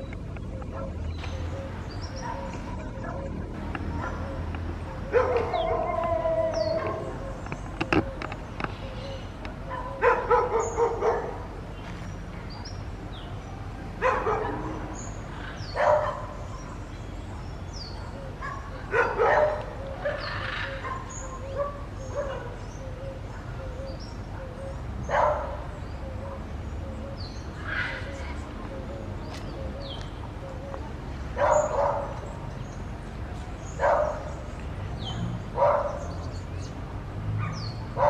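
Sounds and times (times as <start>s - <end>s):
dogs barking: 0.0s - 11.6s, 13.9s - 16.9s, 17.7s - 32.8s, 33.6s - 36.5s, 37.3s - 38.0s.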